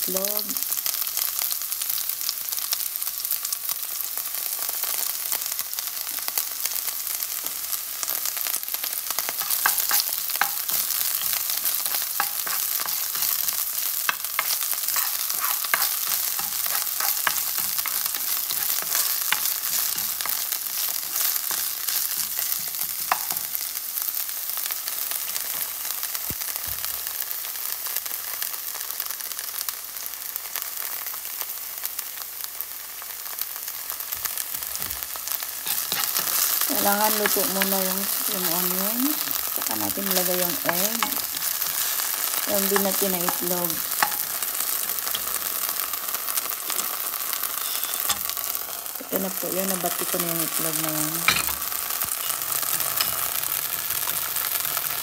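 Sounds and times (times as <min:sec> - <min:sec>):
onions sizzling in a frying pan: 0:00.0 - 0:55.0
utensil scraping a pan: 0:09.4 - 0:23.5, 0:35.6 - 0:37.6, 0:47.6 - 0:48.9.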